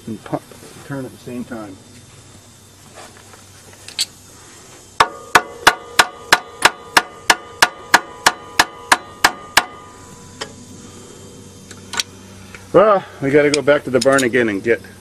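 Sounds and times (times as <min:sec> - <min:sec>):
hammer striking metal: 0:05.0 - 0:10.5.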